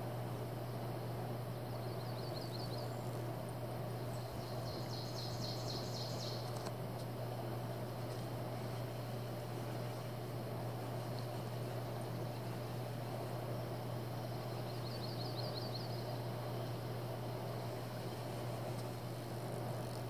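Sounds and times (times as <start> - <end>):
low hum and hiss: 0.0 - 20.0
birds singing: 0.3 - 6.7, 10.8 - 20.0.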